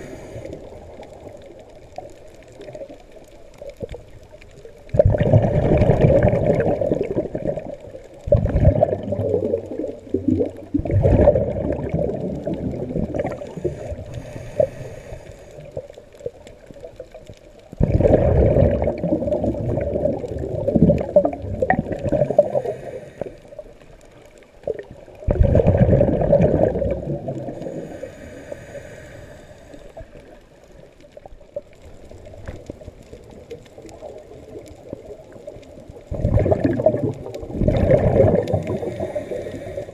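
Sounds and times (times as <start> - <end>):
regulator inhalation hiss: 0.0 - 0.9, 13.5 - 15.7, 22.5 - 23.4, 27.6 - 30.1, 38.8 - 39.9
exhaled bubbles gurgling underwater: 0.0 - 39.9.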